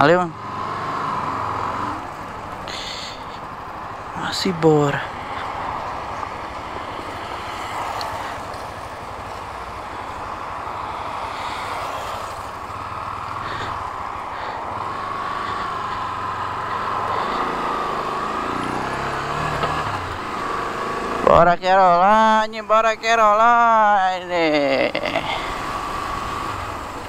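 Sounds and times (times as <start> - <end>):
road rush: 0.0 - 27.0
motorcycle engine running: 5.1 - 21.3.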